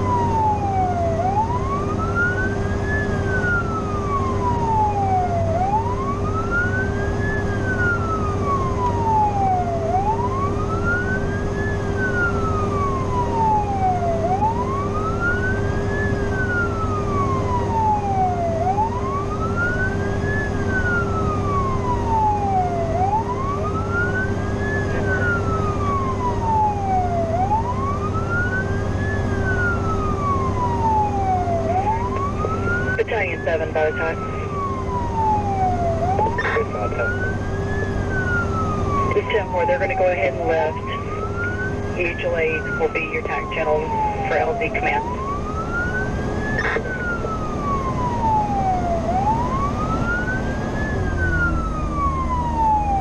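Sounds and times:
fire engine siren wailing: 0:00.0 - 0:53.0
low drone of truck engine: 0:00.0 - 0:53.0.

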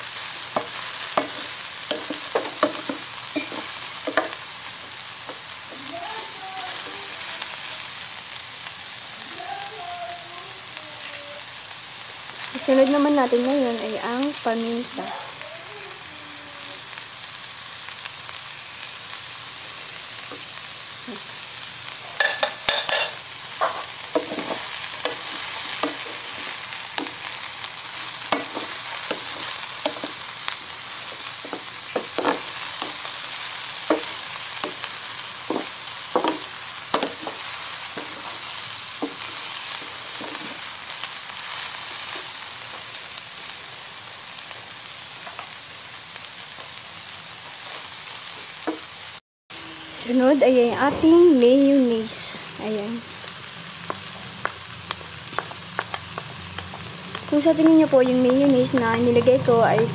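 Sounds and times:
food sizzling in oil: 0:00.0 - 0:59.9
wooden spatula knocking on pan: 0:00.5 - 0:04.4, 0:33.9 - 0:34.8, 0:35.5 - 0:37.4.

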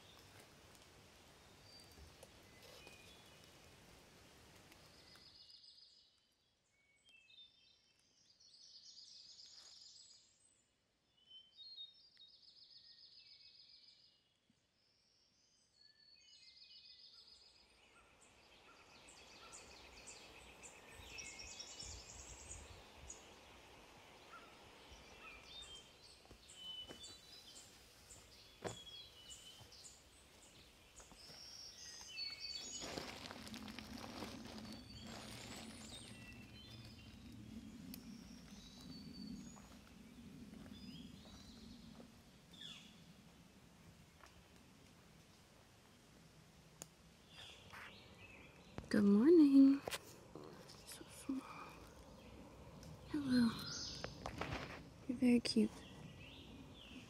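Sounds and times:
songbird trills: 0:15.4 - 0:43.0, 0:50.8 - 0:57.0
faint outdoor hiss: 0:16.6 - 0:57.0.

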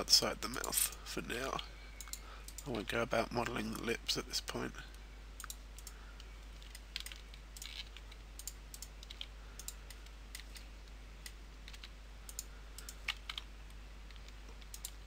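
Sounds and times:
low electrical hum: 0:00.0 - 0:15.0
computer mouse clicks: 0:02.0 - 0:02.7, 0:05.4 - 0:10.6, 0:11.2 - 0:13.5, 0:14.1 - 0:15.0.

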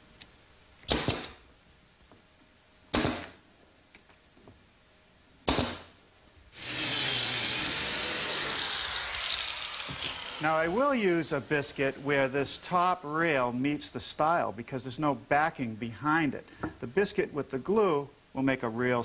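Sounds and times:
nail gun firing: 0:00.8 - 0:01.4, 0:02.9 - 0:03.4, 0:05.4 - 0:06.0, 0:06.6 - 0:10.6.

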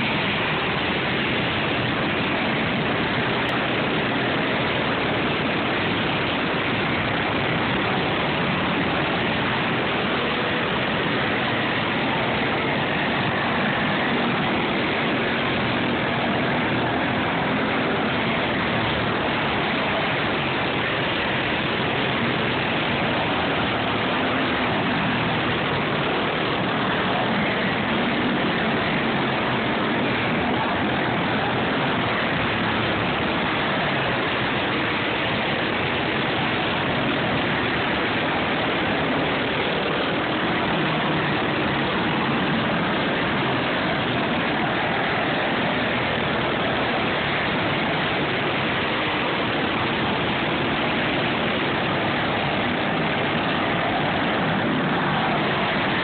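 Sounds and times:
go-kart engines buzzing: 0:00.0 - 0:56.0.

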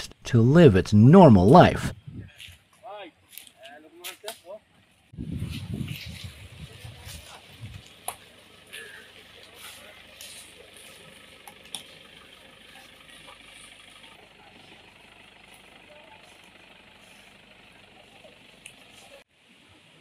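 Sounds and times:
diesel engine idling: 0:04.6 - 0:19.3.

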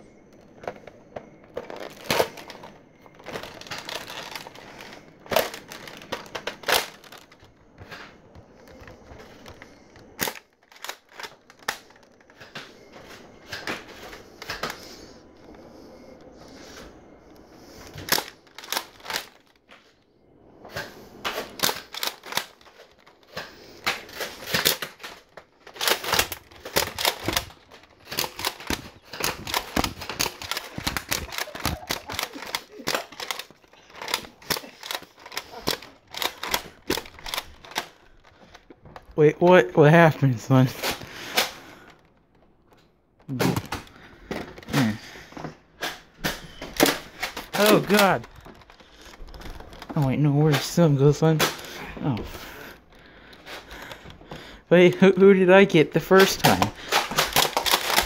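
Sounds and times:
plastic toy blaster clicks: 0:18.0 - 0:19.4, 0:23.8 - 0:37.9, 0:56.2 - 0:58.0.

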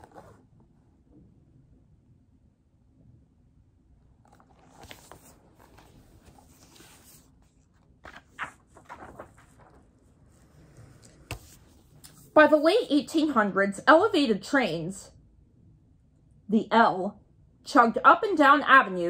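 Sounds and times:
book pages rustling: 0:00.0 - 0:00.4, 0:04.2 - 0:12.3
paper flaps and taps: 0:08.0 - 0:09.8, 0:11.0 - 0:12.2.

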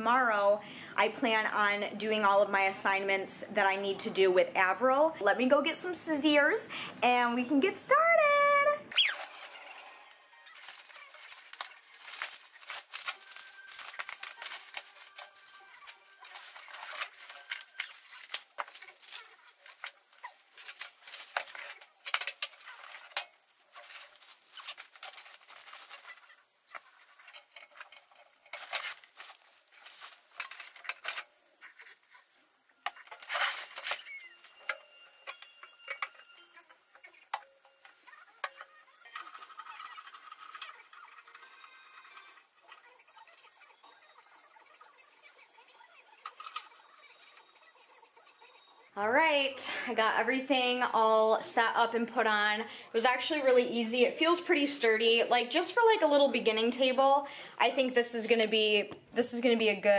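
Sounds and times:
packing materials crinkling: 0:10.3 - 0:48.8.

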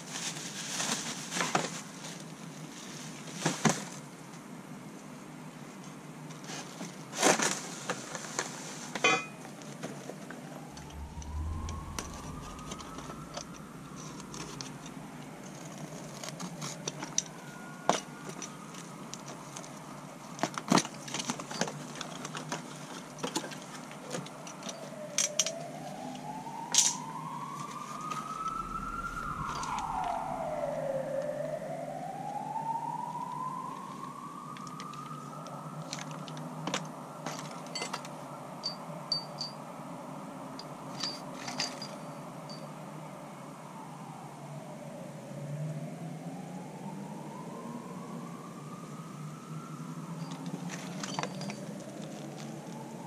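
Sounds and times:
emergency vehicle siren wailing: 0:09.1 - 0:20.4, 0:22.1 - 0:39.0, 0:42.2 - 0:53.0.

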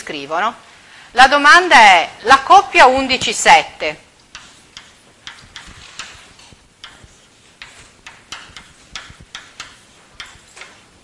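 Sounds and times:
chalk tapping and scratching on blackboard: 0:04.2 - 0:11.0.

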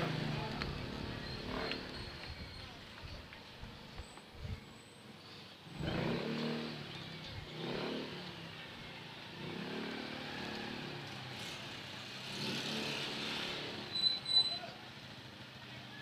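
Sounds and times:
motorcycle engines revving: 0:00.0 - 0:16.0.

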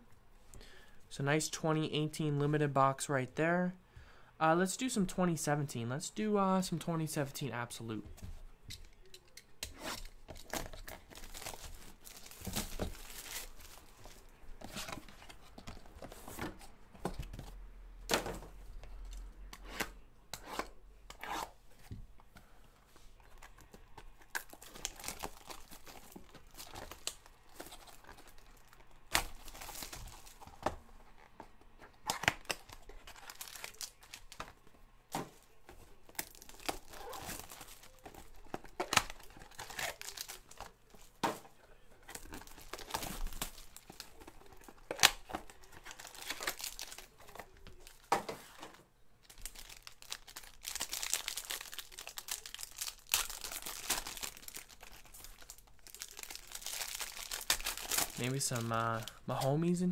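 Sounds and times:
plastic wrapping crinkling and tearing: 0:09.8 - 0:15.4, 0:23.2 - 0:34.7, 0:35.4 - 0:48.6, 0:49.2 - 0:59.7.

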